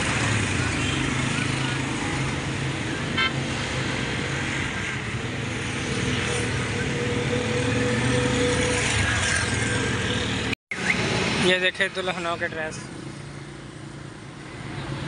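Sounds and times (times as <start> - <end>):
road noise: 0.0 - 15.0
vehicle and motorcycle engines: 0.0 - 15.0.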